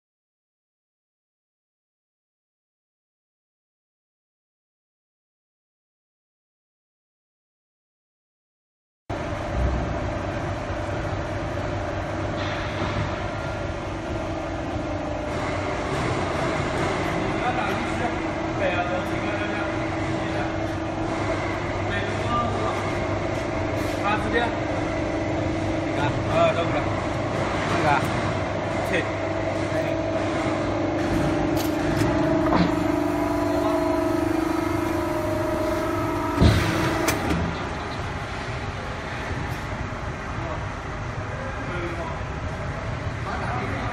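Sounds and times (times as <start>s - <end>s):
machine motor humming: 9.2s - 40.8s.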